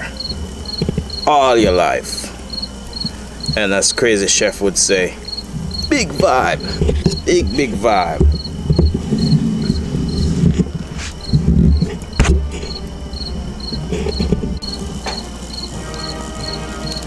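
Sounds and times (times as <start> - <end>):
crickets chirping: 0.0 - 17.0
faint music: 0.0 - 17.0
low rumbling thumps: 0.2 - 3.8, 5.2 - 15.7.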